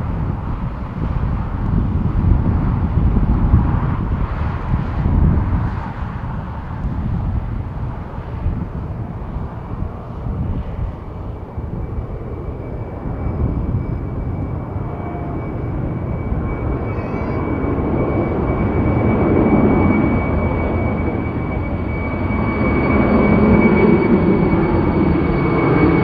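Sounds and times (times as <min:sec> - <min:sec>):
jet plane engines rumbling: 0:00.0 - 0:26.0.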